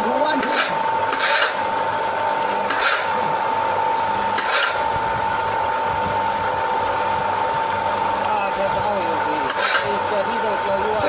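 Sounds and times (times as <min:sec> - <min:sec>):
drilling rig motor hum and whine: 0:00.0 - 0:11.0
brief scrape: 0:04.4 - 0:04.8.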